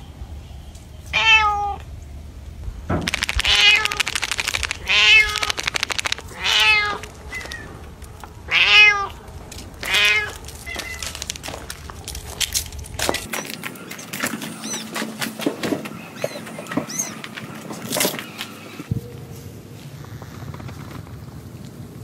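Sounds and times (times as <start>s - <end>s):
cat meowing: 1.1s - 1.9s, 3.4s - 13.3s.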